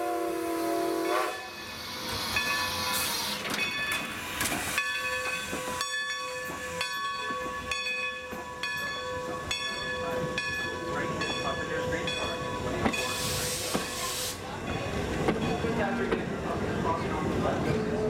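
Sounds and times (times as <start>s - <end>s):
steam locomotive passing: 0.0s - 18.0s
train wheels clicking over rail joints: 1.9s - 8.9s
steam hissing: 13.0s - 14.5s.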